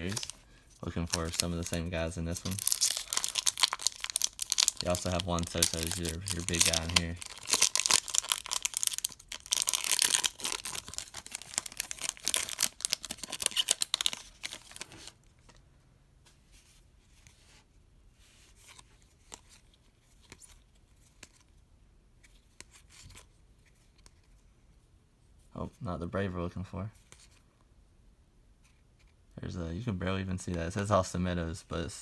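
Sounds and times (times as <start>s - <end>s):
wrapper tearing and crinkling: 0.0s - 15.1s.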